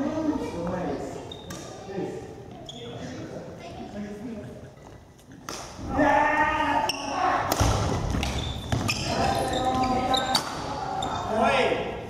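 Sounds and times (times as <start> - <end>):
shoes squeaking: 1.2 - 1.8, 2.4 - 3.2, 8.1 - 11.3.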